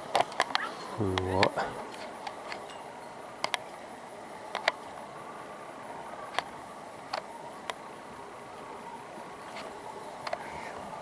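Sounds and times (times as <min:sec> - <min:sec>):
insects trilling: 0:00.0 - 0:11.0
sharp clicks: 0:04.5 - 0:04.8.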